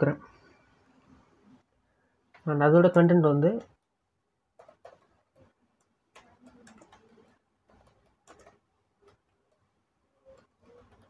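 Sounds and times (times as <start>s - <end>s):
computer keyboard clicking: 4.6s - 9.6s, 10.3s - 11.0s.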